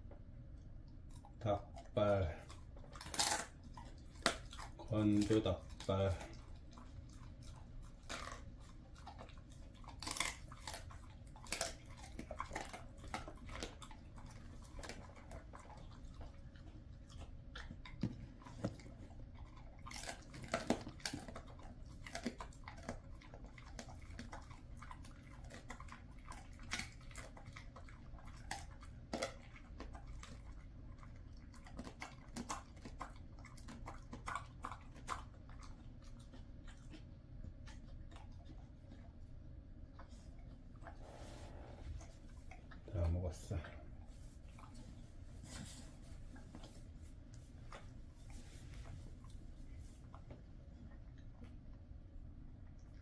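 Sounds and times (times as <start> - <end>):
dog crunching a treat: 0.6 - 41.0.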